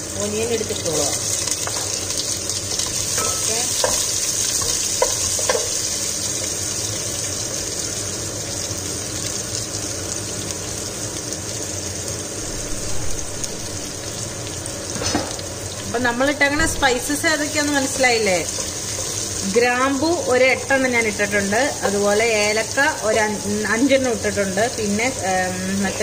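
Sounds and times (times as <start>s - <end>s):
onions sizzling in oil: 0.0s - 26.0s.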